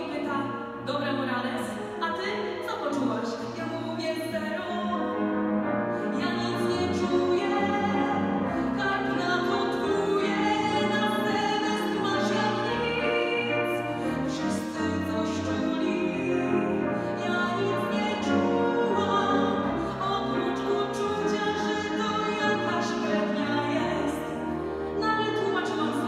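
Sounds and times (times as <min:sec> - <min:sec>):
woman singing: 0:00.0 - 0:05.1, 0:06.1 - 0:26.0
grand piano: 0:00.0 - 0:26.0.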